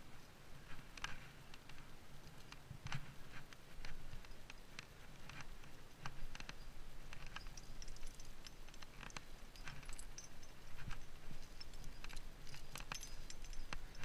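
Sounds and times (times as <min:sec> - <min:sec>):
climbing gear clinking: 0:03.8 - 0:14.0.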